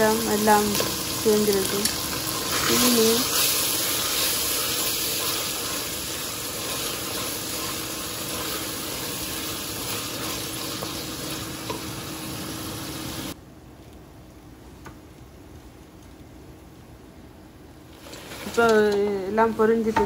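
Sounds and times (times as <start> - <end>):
vegetables sizzling in oil: 0.0 - 13.4, 17.8 - 20.0.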